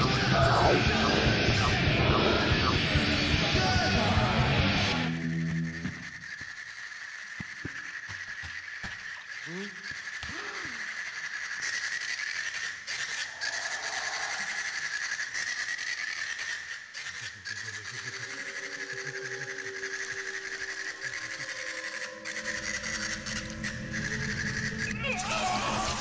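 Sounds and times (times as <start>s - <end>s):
sustained low electronic tones: 0.0s - 6.8s, 17.3s - 25.2s.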